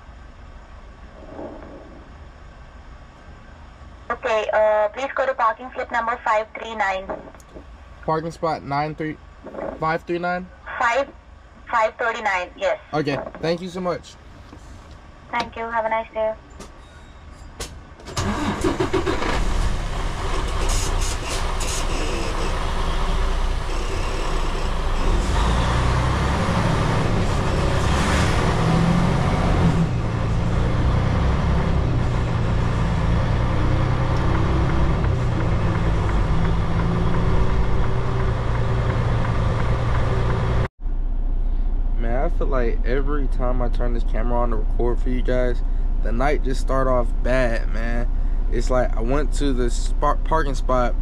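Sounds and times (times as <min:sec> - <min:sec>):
truck diesel engine driving: 0:17.8 - 0:51.0.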